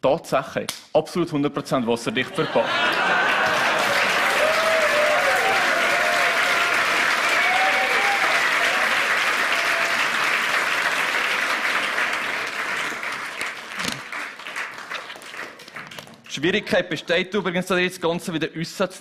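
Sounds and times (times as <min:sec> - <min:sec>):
audience applauding: 0:02.5 - 0:16.3.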